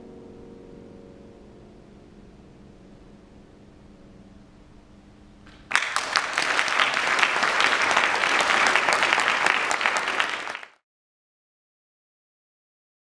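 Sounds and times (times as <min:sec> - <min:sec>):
piano chord: 0:00.0 - 0:04.9
audience applauding: 0:05.5 - 0:10.8.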